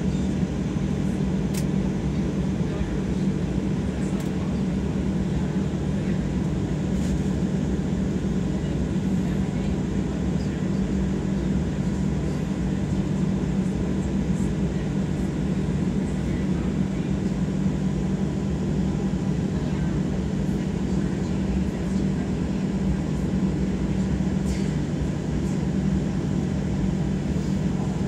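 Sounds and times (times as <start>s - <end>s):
jet engines low hum in cabin: 0.0s - 28.0s.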